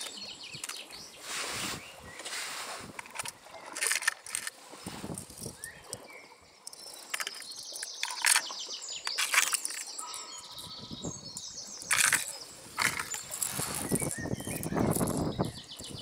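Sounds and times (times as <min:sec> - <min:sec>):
plastic lures rattling in tackle box: 0:00.0 - 0:00.9, 0:02.9 - 0:06.0, 0:06.7 - 0:10.7, 0:11.4 - 0:16.0
birds chirping: 0:00.0 - 0:16.0.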